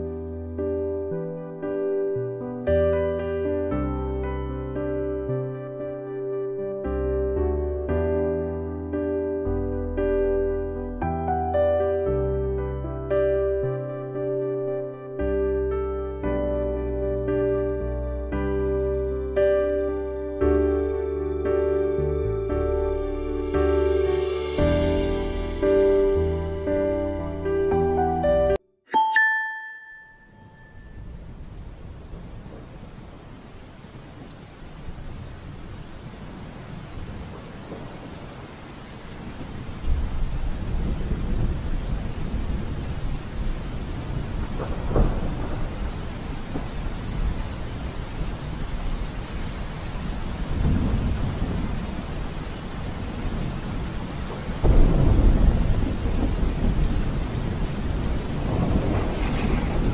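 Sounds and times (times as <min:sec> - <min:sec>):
steady rain: 0:00.0 - 0:28.0, 0:30.4 - 0:59.9
thunder rolling: 0:34.9 - 0:59.9.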